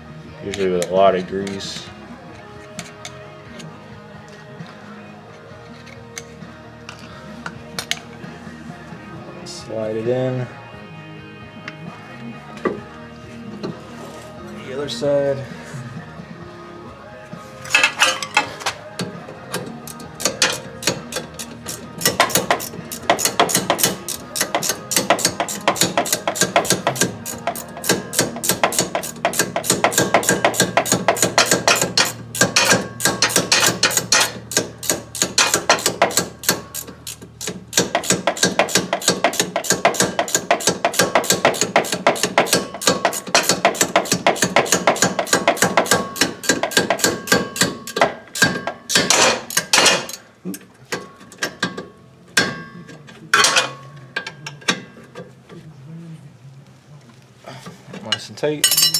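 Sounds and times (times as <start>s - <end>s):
hand ratchet clicking: 19.5s - 50.2s.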